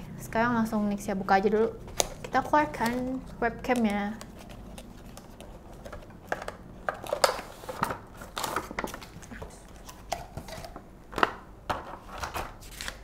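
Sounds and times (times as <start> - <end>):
packaging rustling and crinkling: 1.8 - 10.8.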